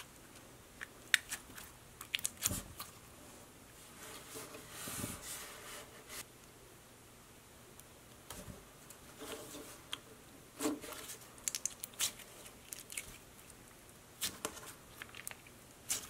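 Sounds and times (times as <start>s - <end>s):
slime squishing: 0.0s - 3.0s, 11.0s - 13.6s, 14.2s - 16.0s
crackly clicks of slime: 0.8s - 2.9s, 11.4s - 13.2s, 14.2s - 16.0s.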